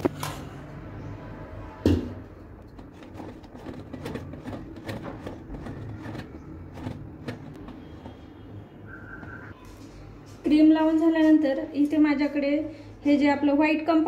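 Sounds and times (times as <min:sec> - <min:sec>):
knife scraping cream: 0:02.7 - 0:08.2.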